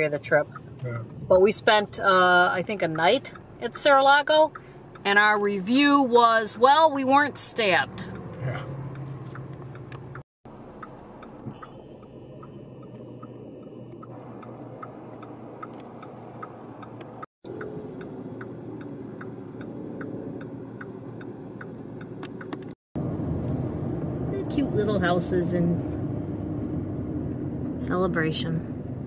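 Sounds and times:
turn signal ticking: 0.0 - 22.8
road noise inside a car: 0.0 - 29.0.

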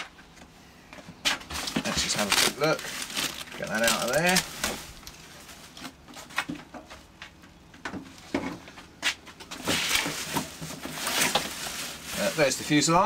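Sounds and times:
bubble wrap rustling: 1.5 - 6.4, 9.5 - 13.0.

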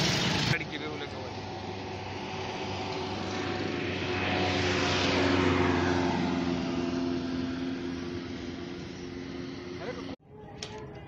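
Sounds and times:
vehicle engine running: 0.0 - 3.8, 5.9 - 10.2
tyre and road noise: 0.0 - 11.0.

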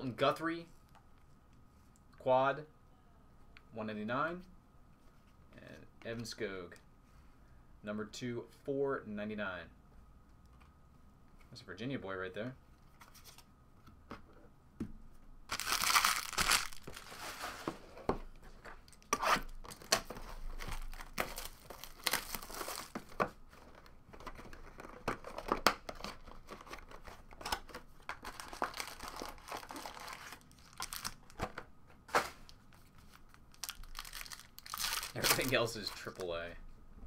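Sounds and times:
foil wrapper tearing and crinkling: 15.5 - 17.3, 20.8 - 23.0, 28.3 - 31.4, 33.4 - 35.6.

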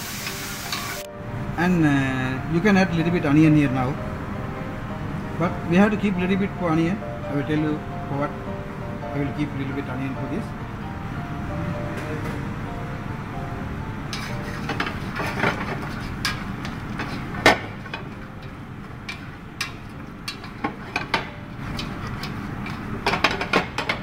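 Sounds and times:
wooden spatula scraping pan: 14.2 - 16.4.

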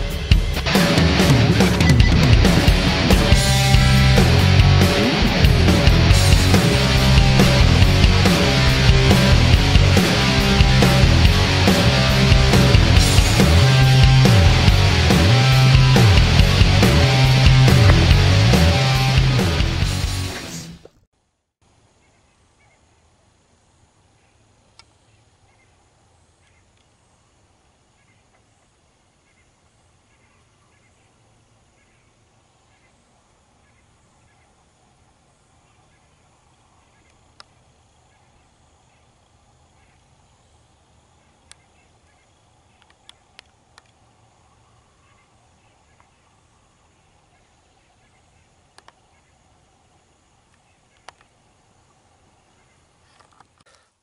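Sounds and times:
faint sharp clicks: 24.7 - 25.0, 26.7 - 27.0, 37.0 - 37.6, 41.4 - 44.0, 48.7 - 49.0, 50.5 - 51.4.

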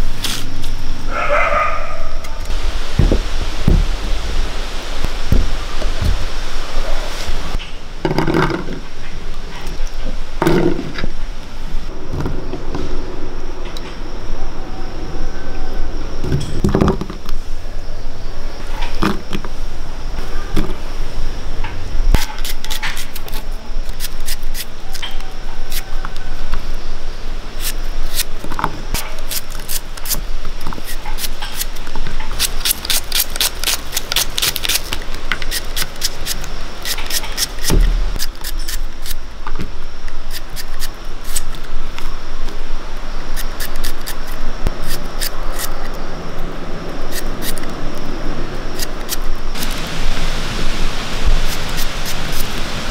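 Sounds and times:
background hiss: 0.0 - 52.9
knife slicing shallots: 22.2 - 25.1, 27.6 - 28.3, 30.8 - 39.2, 40.3 - 41.6, 43.4 - 45.8.

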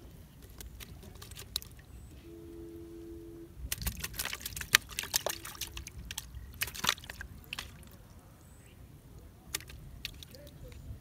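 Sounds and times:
steady low hum: 0.0 - 11.0
water splashing in plastic bucket: 0.4 - 1.9, 3.6 - 8.0, 9.5 - 10.6.

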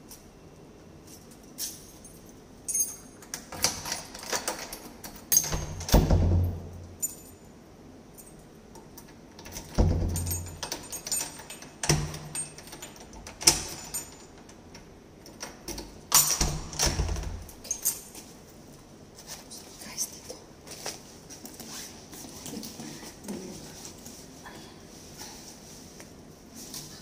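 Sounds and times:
keys jangling: 1.1 - 7.4, 8.1 - 18.4
door handle and lock rattling: 2.7 - 7.2, 9.0 - 18.1.

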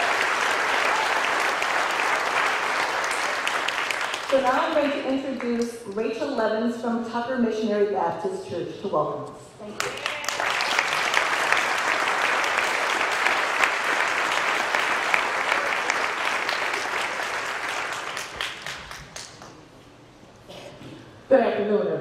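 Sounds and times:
audience applauding: 0.0 - 5.0, 9.8 - 19.7.

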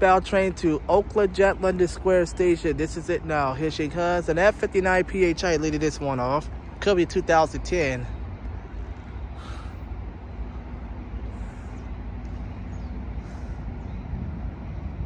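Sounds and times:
faint hum: 0.0 - 15.0
low rumble: 7.8 - 15.0.

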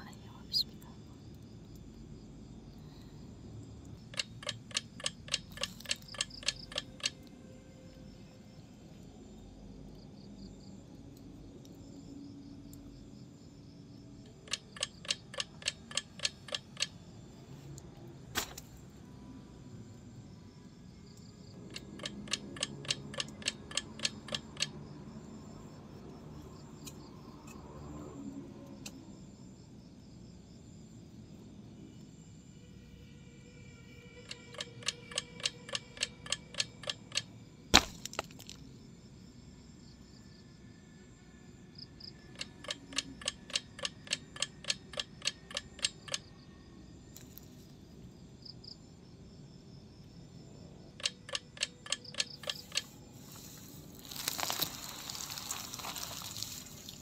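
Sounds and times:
rapid even clicking: 4.0 - 7.2.

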